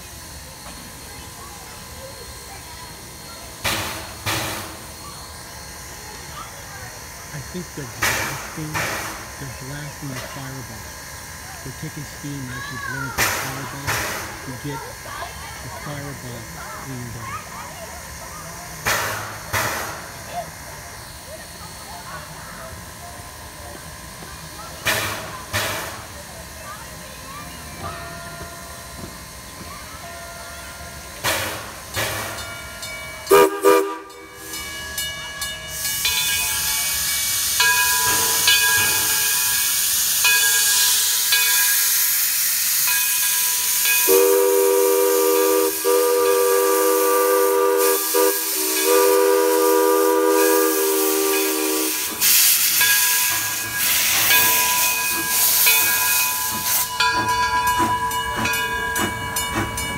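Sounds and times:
steam locomotive hissing: 0:00.0 - 0:59.9
steam whistle blasts: 0:33.3 - 0:34.4, 0:43.8 - 0:55.0.

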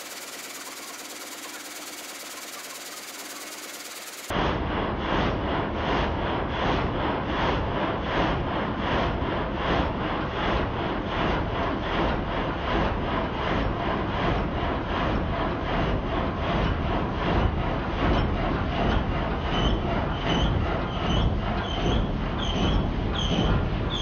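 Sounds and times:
gang saw cutting log: 0:00.0 - 0:04.3.

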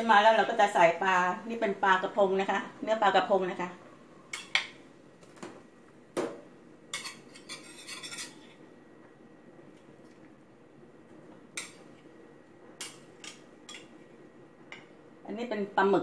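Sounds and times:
utensils clinking against pot: 0:06.9 - 0:08.5.

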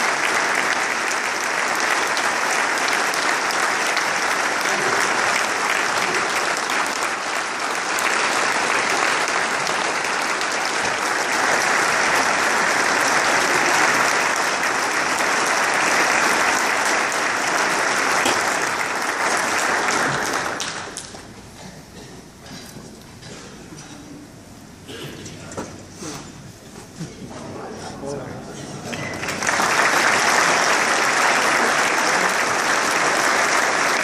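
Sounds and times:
audience applauding: 0:00.0 - 0:21.4, 0:28.9 - 0:34.0.

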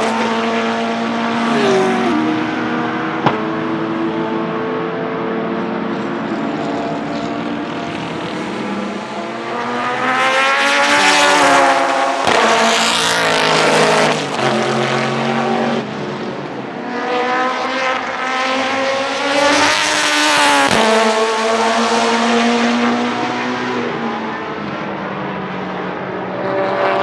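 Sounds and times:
racing car engine passing by: 0:00.1 - 0:03.7.

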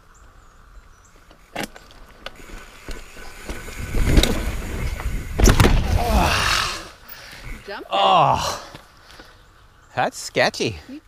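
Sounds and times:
bike tyres rumbling on rock: 0:01.2 - 0:07.7
heavy thumps: 0:02.8 - 0:06.1.

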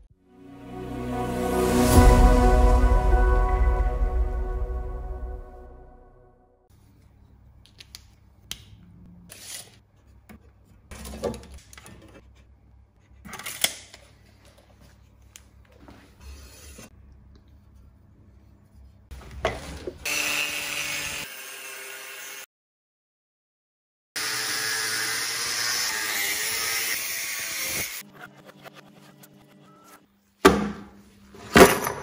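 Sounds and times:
angle grinder cutting steel: 0:20.1 - 0:22.4, 0:24.2 - 0:28.0.

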